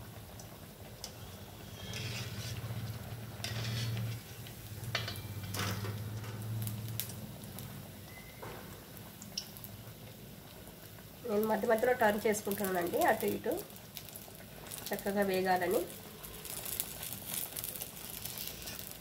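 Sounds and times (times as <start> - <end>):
oil bubbling deep-frying: 0.0 - 19.0
steel spoon scraping pan: 1.0 - 5.8, 18.1 - 19.0.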